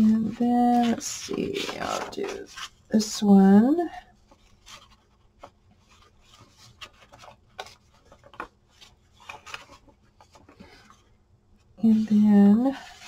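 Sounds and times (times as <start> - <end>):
paper pages rustling: 0.0 - 3.0, 4.1 - 11.2.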